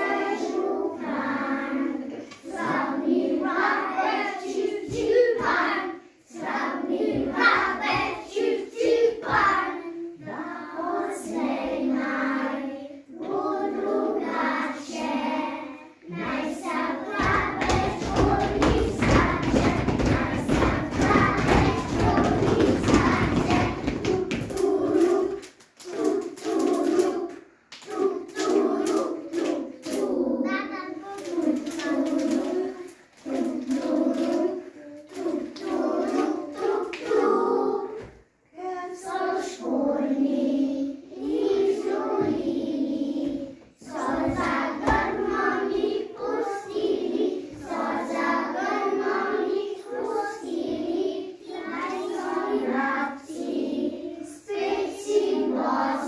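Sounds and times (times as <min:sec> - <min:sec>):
children singing in unison: 0:00.0 - 0:56.0.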